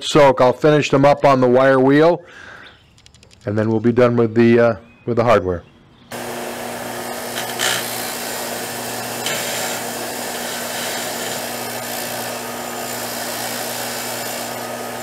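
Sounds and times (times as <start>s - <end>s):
bench grinder motor hum: 6.1s - 15.0s
wire wheel scratching metal: 7.1s - 15.0s.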